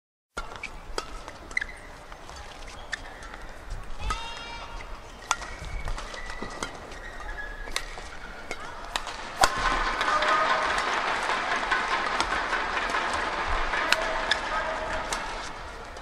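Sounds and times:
racket striking shuttlecock: 0.4s - 16.0s
shoes squeaking on floor: 1.6s - 8.4s
crowd clapping and cheering: 9.5s - 16.0s.

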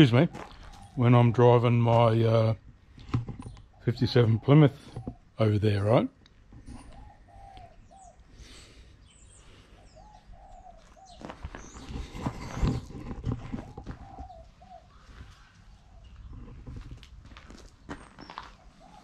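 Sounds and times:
footsteps on gravel: 0.0s - 2.2s, 10.5s - 19.0s.

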